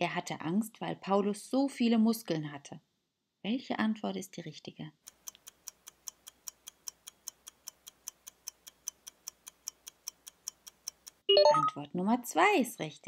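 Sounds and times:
clock ticking fast: 0:05.0 - 0:11.3.

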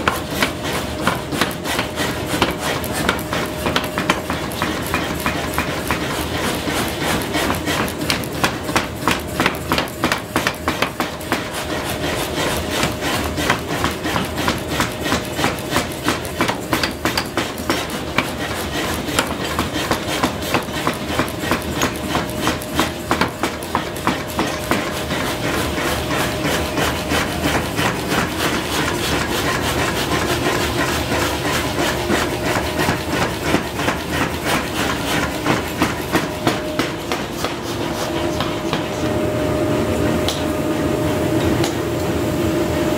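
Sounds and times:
power hammer pounding metal: 0:00.0 - 0:39.5
machine running hum: 0:17.4 - 0:42.9.

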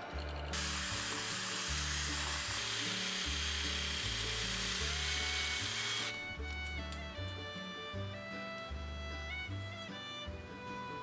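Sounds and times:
background music with bass: 0:00.0 - 0:11.0
drill whining cutting metal: 0:00.5 - 0:07.0.

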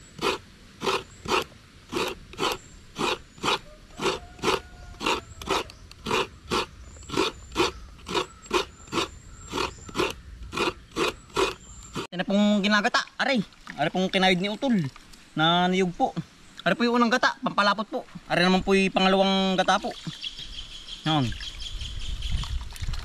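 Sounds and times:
coconut grater rasping: 0:00.0 - 0:12.1.

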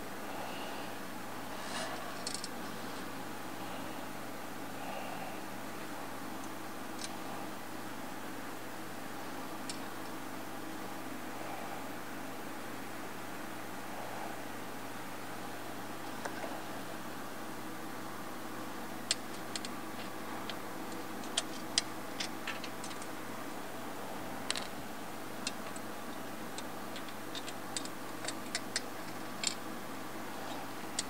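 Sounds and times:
steady background hum: 0:00.0 - 0:31.0
light clicks and taps on metal: 0:19.1 - 0:23.1, 0:25.4 - 0:29.6.

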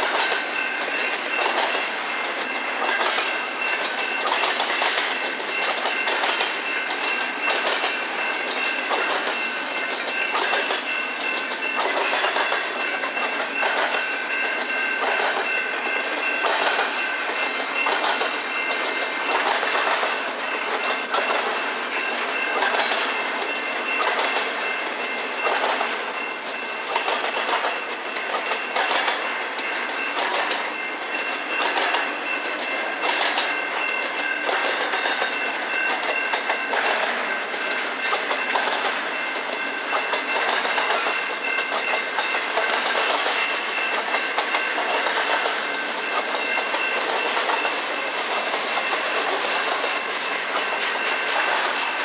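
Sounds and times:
train wheels clacking over rail joints: 0:00.0 - 0:52.0
high ringing tone: 0:21.6 - 0:25.5.

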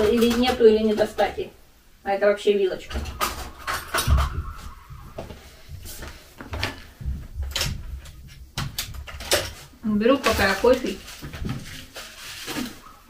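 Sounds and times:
footsteps: 0:02.9 - 0:08.5
kitchen utensils clattering: 0:09.0 - 0:11.1.

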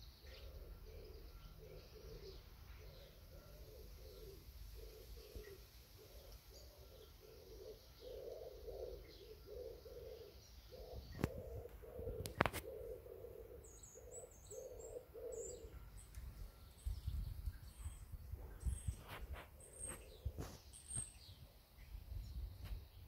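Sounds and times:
dove cooing: 0:00.0 - 0:15.9, 0:18.4 - 0:21.0.

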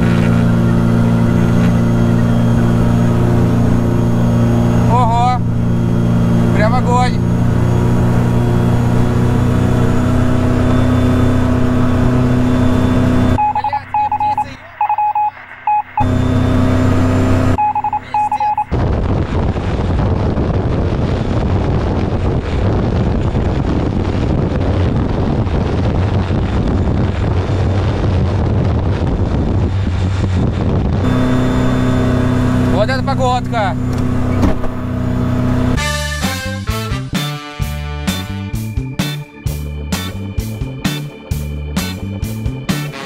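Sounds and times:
aircraft engine and propeller drone: 0:00.0 - 0:37.0, 0:37.9 - 0:43.0
short electronic beeps: 0:13.4 - 0:18.8
wind rushing on microphone: 0:18.7 - 0:35.4.

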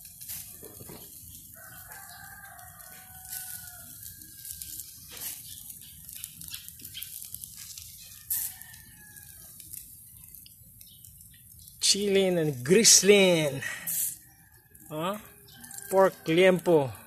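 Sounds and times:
fat sizzling on a grill: 0:00.0 - 0:17.0
rooster crowing: 0:01.5 - 0:04.8, 0:08.1 - 0:09.6, 0:14.3 - 0:17.0.

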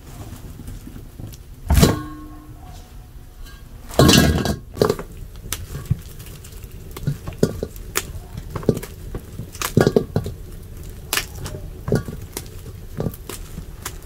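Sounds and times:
dried fruit knocking on enamel basin: 0:03.9 - 0:06.1, 0:07.0 - 0:14.0.

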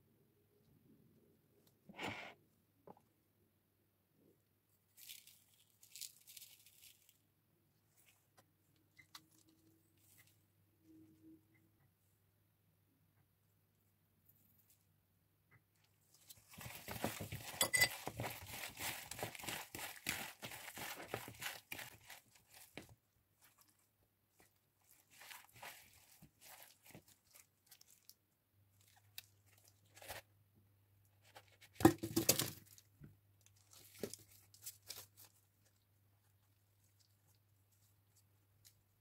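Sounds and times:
crackling rustle: 0:05.0 - 0:07.2
tomatoes tossed in plastic bowl: 0:16.1 - 0:28.1.

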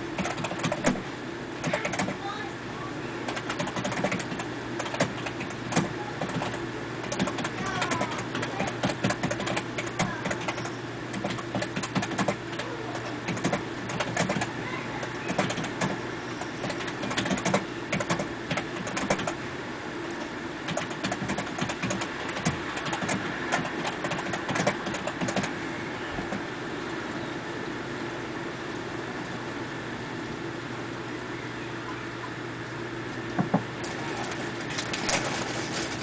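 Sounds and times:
hailstones clicking: 0:33.8 - 0:36.0.

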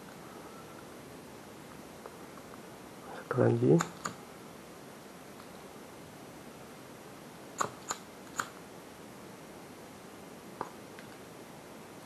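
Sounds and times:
faint steady hiss: 0:00.0 - 0:12.0
small sharp clicks: 0:03.8 - 0:04.2, 0:07.6 - 0:08.6.

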